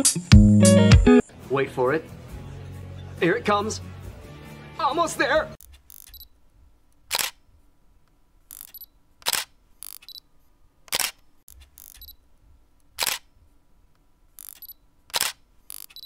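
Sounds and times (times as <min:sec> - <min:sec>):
camera shutter clicks: 0:05.7 - 0:06.3, 0:07.1 - 0:07.4, 0:08.5 - 0:10.2, 0:10.9 - 0:12.2, 0:13.0 - 0:13.3, 0:14.4 - 0:16.0.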